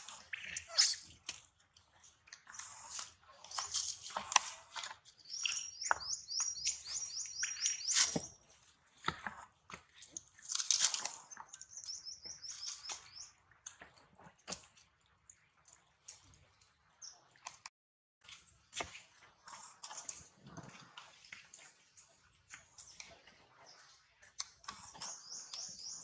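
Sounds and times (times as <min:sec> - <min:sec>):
bird chirping: 0:05.2 - 0:08.4, 0:11.2 - 0:13.3, 0:24.6 - 0:26.0.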